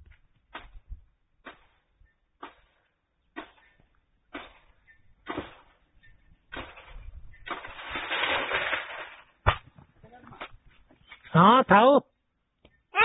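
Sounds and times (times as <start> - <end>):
blade chopping strikes: 4.3 - 5.7
leaves rustling: 6.7 - 9.4.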